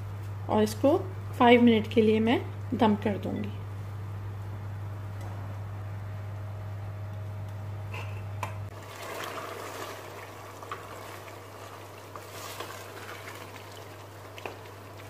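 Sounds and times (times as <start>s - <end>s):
steady low hum: 0.0s - 8.9s
thick curry bubbling in pot: 8.7s - 15.0s
wooden spoon stirring: 8.8s - 15.0s.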